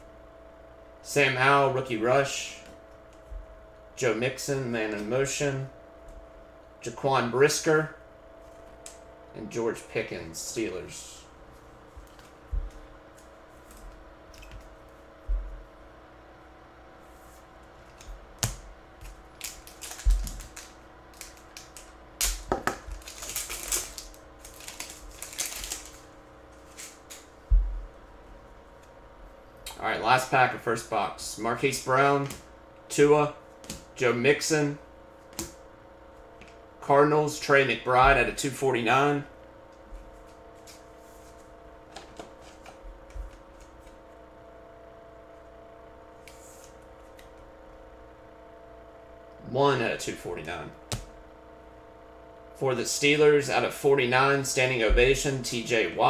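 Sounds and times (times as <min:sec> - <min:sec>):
faint electrical hum: 0:00.0 - 0:56.0
trading cards clicking and rustling: 0:17.9 - 0:26.0
foil wrapper crinkling and tearing: 0:19.3 - 0:27.2.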